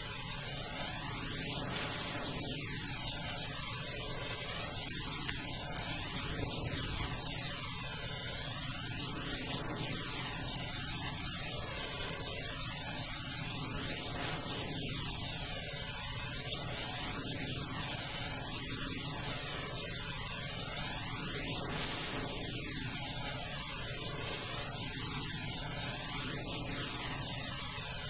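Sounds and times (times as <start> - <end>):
steady sweeping hiss: 0.0 - 19.1.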